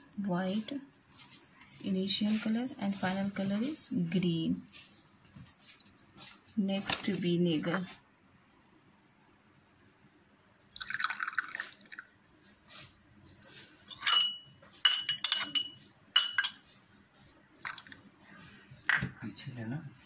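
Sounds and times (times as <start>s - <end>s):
liquid splashing into a glass: 10.7s - 12.1s
glassware clinking: 13.1s - 16.6s.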